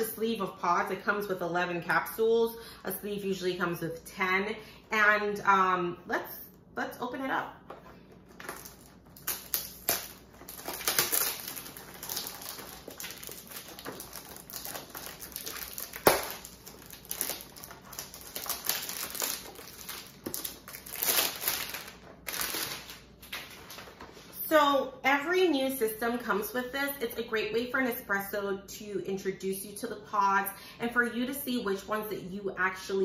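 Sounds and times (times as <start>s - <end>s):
plastic shrink-wrap crinkling: 7.9s - 24.4s.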